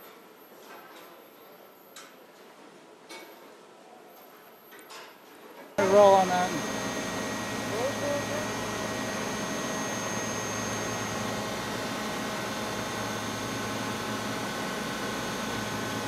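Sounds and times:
constant high-pitched tones: 5.8s - 16.0s
factory machinery hum and hiss: 5.8s - 16.0s.

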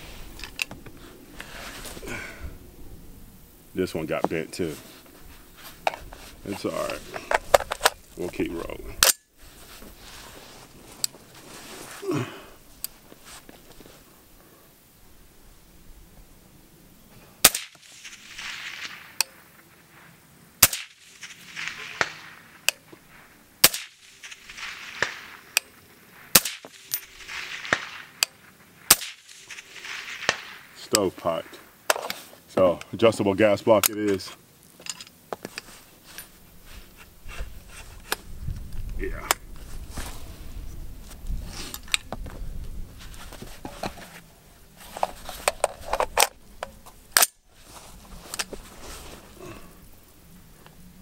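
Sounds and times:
rifle action clicking and rattling: 6.7s - 8.0s, 45.0s - 47.4s
suppressed rifle shot: 17.4s - 19.6s, 20.6s - 31.1s
wind noise on microphone: 36.4s - 44.0s.

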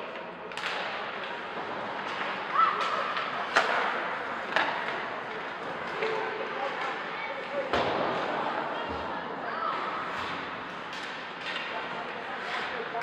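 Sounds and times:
hockey sticks striking puck: 0.0s - 9.1s, 9.7s - 13.0s
rink and crowd noise: 0.0s - 13.0s
puck hitting the boards: 0.5s - 6.2s, 7.7s - 9.0s.

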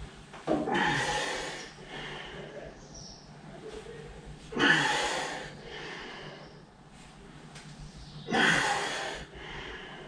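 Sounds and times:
man breathing heavily: 0.6s - 2.8s, 4.4s - 7.1s, 8.0s - 10.0s.

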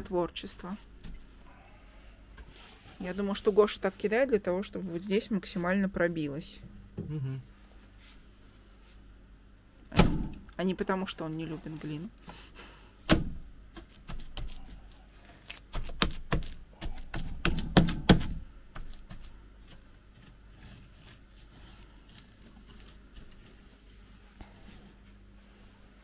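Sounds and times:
wet clay slapping: 13.1s - 14.8s, 15.4s - 21.5s.

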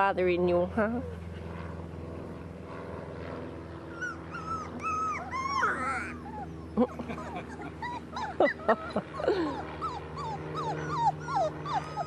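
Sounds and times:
low steady hum: 0.0s - 12.0s
puppies whining: 3.8s - 12.0s.

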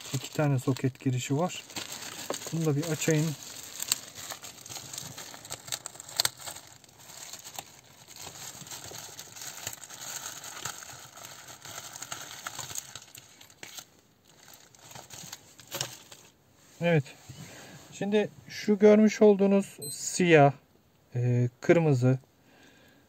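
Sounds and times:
plastic bag crinkling: 0.0s - 16.4s.

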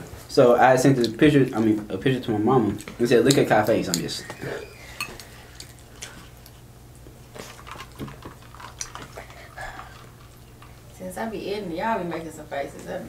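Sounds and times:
crunching taco shells: 0.9s - 10.9s.

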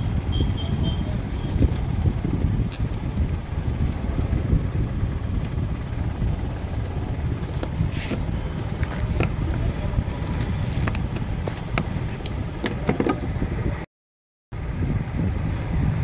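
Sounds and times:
low background rumble: 0.0s - 13.9s
screwdriver clicking and scraping: 7.5s - 13.3s.

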